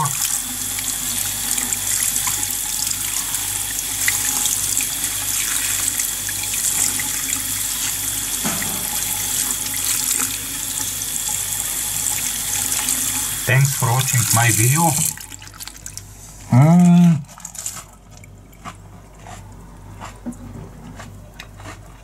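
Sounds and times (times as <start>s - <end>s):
tap water running into sink: 0.0s - 16.1s.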